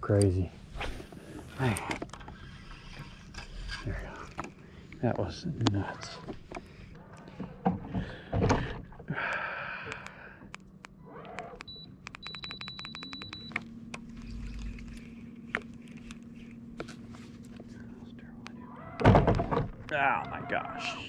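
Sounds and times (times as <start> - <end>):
electronic beeping and ticking: 11.6 - 13.7
electric motor humming: 13.4 - 17.6.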